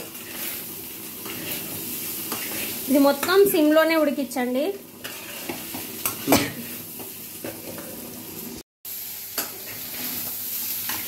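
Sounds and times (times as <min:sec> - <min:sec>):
spatula scraping pan: 0:00.0 - 0:03.6, 0:04.9 - 0:08.0, 0:09.3 - 0:11.0
fish roe sizzling in oil: 0:00.0 - 0:11.0.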